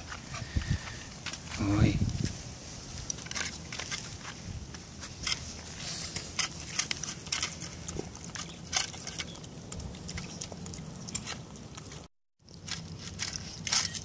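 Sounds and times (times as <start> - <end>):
puppy chewing wet food: 6.5 - 13.6.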